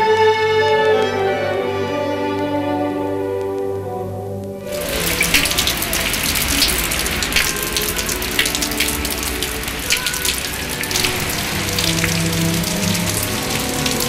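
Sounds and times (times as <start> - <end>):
raindrops splashing: 4.6 - 14.0
steady rain hiss: 4.6 - 14.0.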